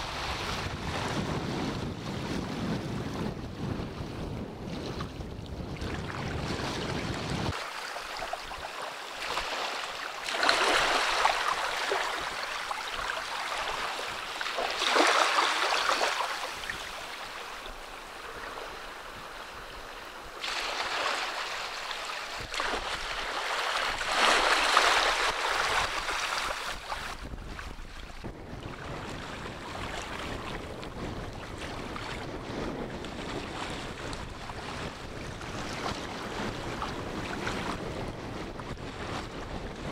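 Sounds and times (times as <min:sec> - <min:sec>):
wind rumble on microphone: 0:00.0 - 0:07.6, 0:21.3 - 0:39.9
small waves washing on sand: 0:05.8 - 0:39.9.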